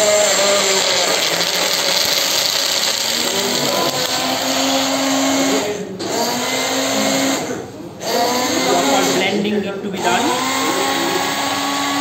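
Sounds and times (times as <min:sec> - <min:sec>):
hand blender blending ice: 0:00.0 - 0:09.4, 0:10.0 - 0:12.0.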